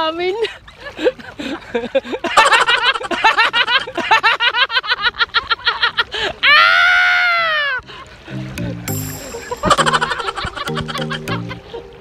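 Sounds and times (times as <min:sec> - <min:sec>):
man laughing hard: 0:01.0 - 0:06.1, 0:09.2 - 0:11.9.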